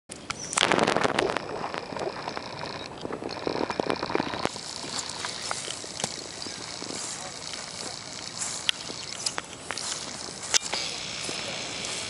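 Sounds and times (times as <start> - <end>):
dog gnawing coconut husk: 0.8 - 12.0.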